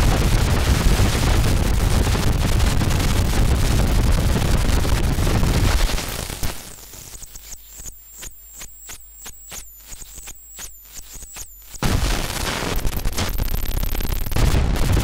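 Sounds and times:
loud crackling noise: 0.0s - 15.0s
sharp electronic clicks: 5.7s - 15.0s.

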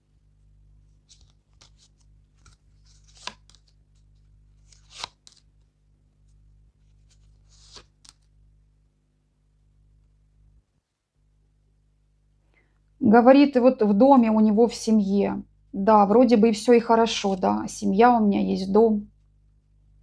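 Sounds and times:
cards swishing on a table: 1.0s - 5.5s, 6.9s - 8.3s.

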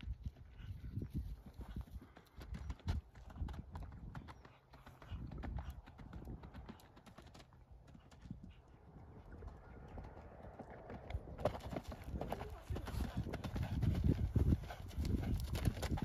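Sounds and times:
horse hoofbeats on turf: 0.0s - 8.7s.

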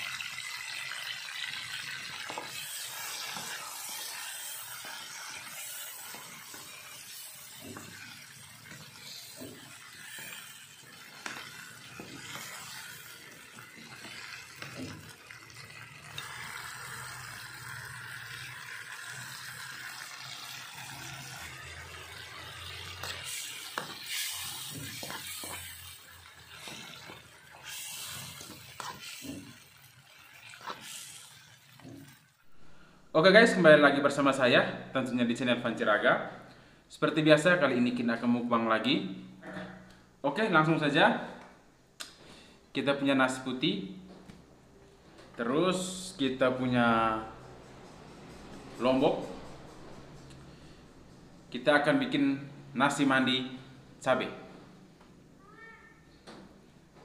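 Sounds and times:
sauce sizzling in a wok: 0.0s - 32.6s
metal spoon scraping a pan: 2.3s - 15.1s, 22.2s - 32.3s.

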